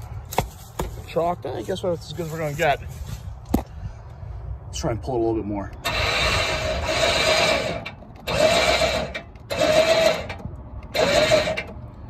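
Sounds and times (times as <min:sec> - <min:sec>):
winch motor whining: 0:05.8 - 0:11.8.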